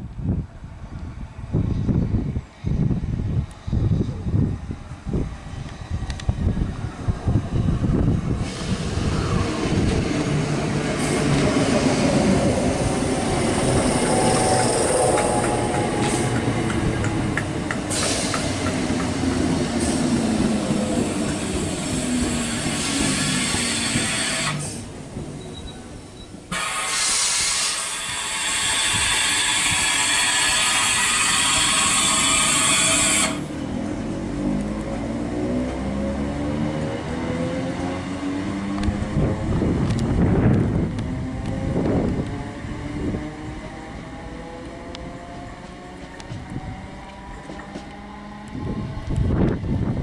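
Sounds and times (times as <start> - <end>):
strong hiss: 17.7 - 18.8, 26.5 - 33.4.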